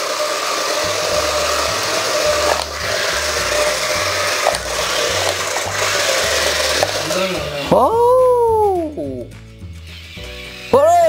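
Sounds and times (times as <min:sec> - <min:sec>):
toy car motor whirring: 0:00.0 - 0:07.8
wheels rushing on concrete: 0:00.0 - 0:08.1
bass beat music: 0:00.9 - 0:11.0.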